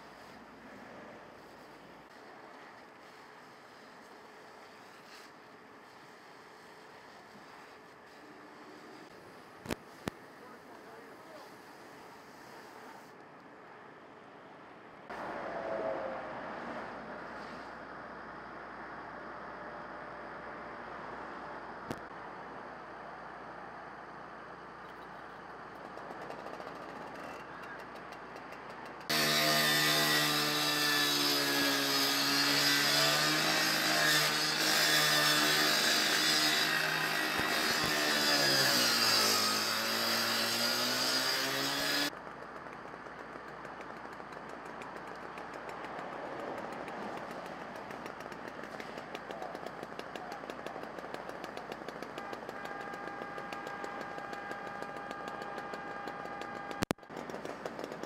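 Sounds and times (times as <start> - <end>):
small gasoline engine whining: 46.6 - 58.0.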